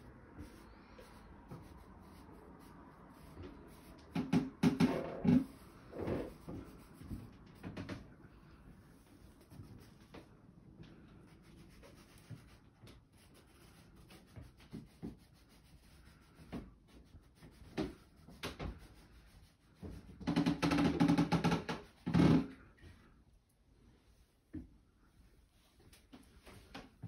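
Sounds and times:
rubbing and scraping: 0:00.0 - 0:08.0.

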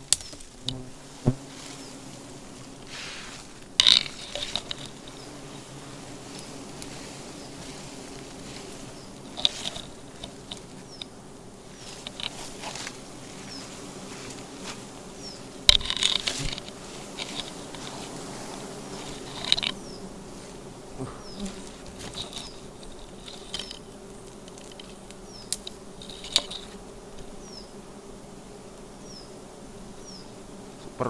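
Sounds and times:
bees buzzing: 0:00.0 - 0:31.0
leaves brushing a bee comb: 0:00.0 - 0:31.0.

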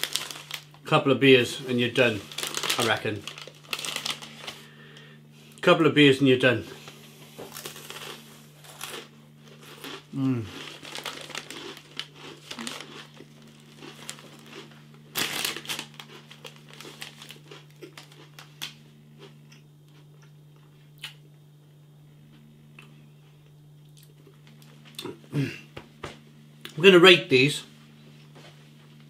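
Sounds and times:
plastic snack packet crinkling: 0:00.0 - 0:04.7, 0:07.4 - 0:18.8
low electrical hum: 0:00.0 - 0:29.0.

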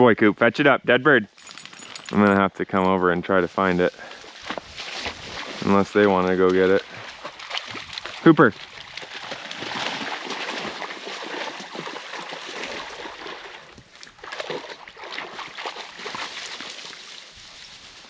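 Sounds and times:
dry grass rustling and crackling: 0:03.2 - 0:14.2, 0:15.4 - 0:18.0.

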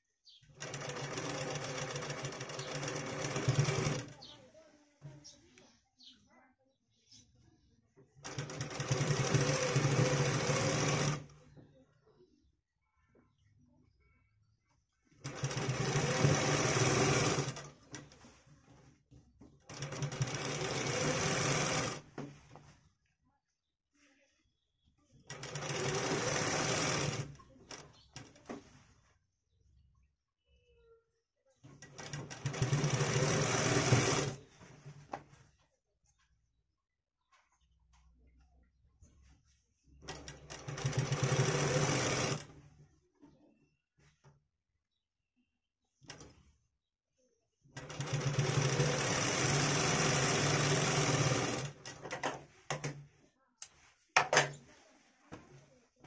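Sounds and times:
sewing machine running: 0:00.6 - 0:04.2, 0:08.2 - 0:11.3, 0:15.2 - 0:18.0, 0:19.7 - 0:22.1, 0:25.3 - 0:28.3, 0:31.8 - 0:34.4, 0:40.1 - 0:42.5, 0:47.8 - 0:52.3.

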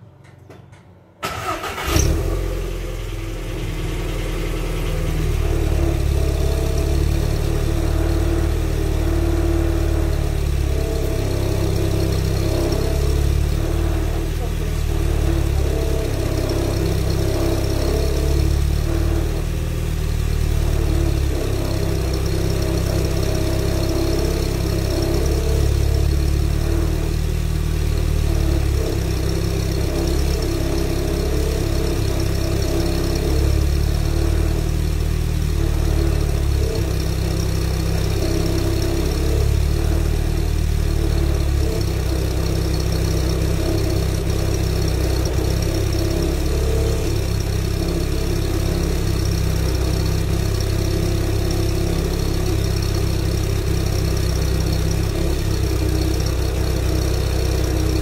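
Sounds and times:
car engine idling: 0:01.2 - 0:58.0.

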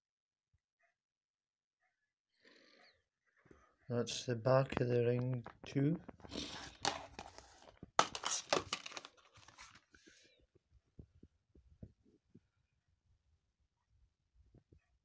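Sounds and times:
plastic case clicking open: 0:08.0 - 0:09.2.

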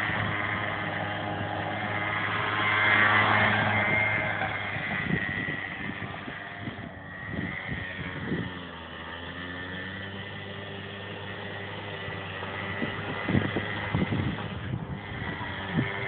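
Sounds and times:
small engine buzzing: 0:00.0 - 0:16.0.

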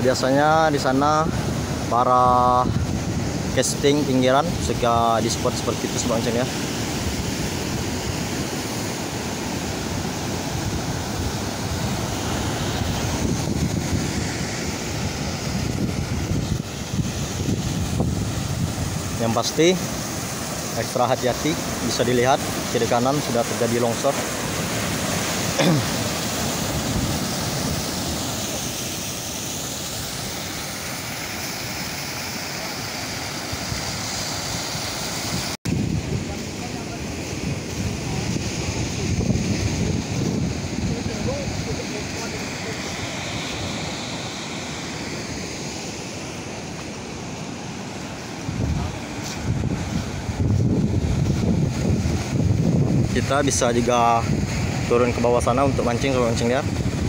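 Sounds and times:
surf breaking over rocks: 0:00.0 - 0:57.0
wind buffeting microphone: 0:01.0 - 0:20.7, 0:35.2 - 0:44.2, 0:48.2 - 0:57.0.

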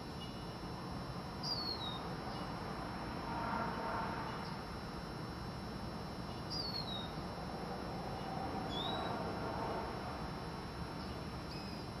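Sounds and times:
steady background noise: 0:00.0 - 0:12.0
bird whistled calls: 0:01.4 - 0:02.0, 0:06.5 - 0:07.1, 0:08.7 - 0:09.1.

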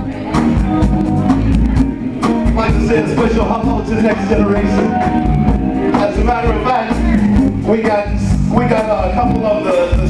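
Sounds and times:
person singing: 0:00.0 - 0:07.4
bass guitar: 0:00.0 - 0:10.0
drum kit beat: 0:00.0 - 0:10.0.

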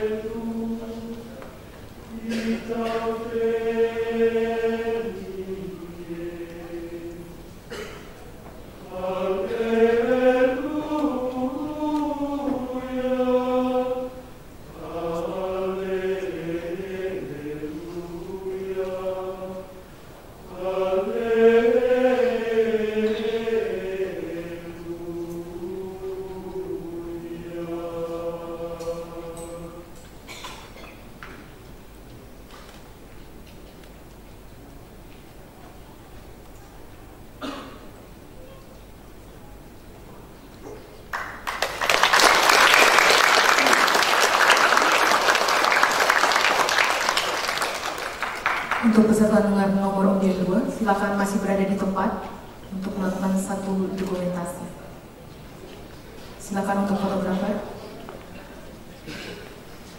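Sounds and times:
men's choir chanting in unison: 0:00.0 - 0:07.9, 0:08.8 - 0:19.8, 0:20.4 - 0:30.0.

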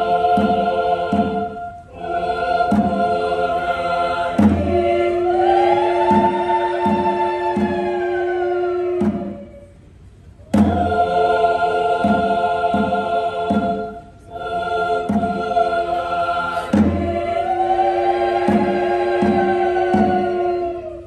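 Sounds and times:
drum beats: 0:00.0 - 0:20.8
choir singing sustained chords: 0:00.0 - 0:21.0.

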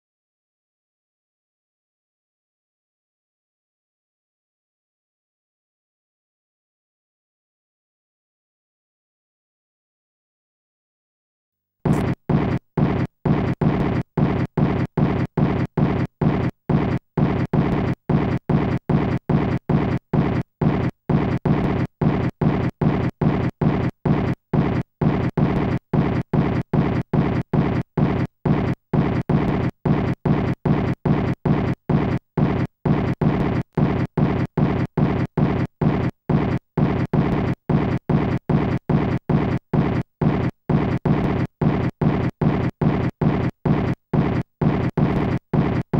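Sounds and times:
rhythmic rumbling noise pulses: 0:11.9 - 0:45.9.

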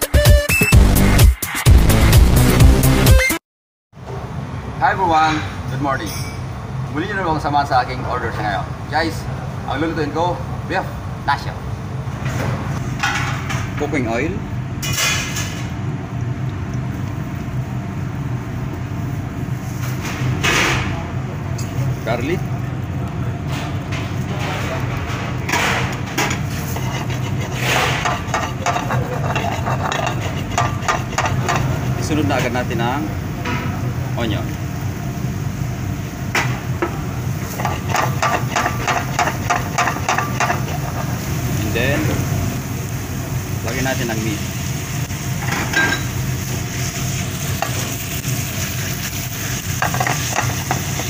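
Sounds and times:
low mechanical hum: 0:04.0 - 0:51.0
metal spatula scraping steel pan: 0:26.5 - 0:31.7.

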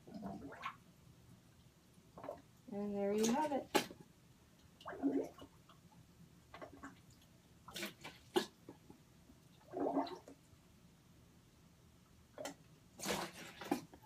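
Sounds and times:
water gurgling: 0:00.0 - 0:01.0, 0:01.6 - 0:08.9, 0:09.5 - 0:10.5.

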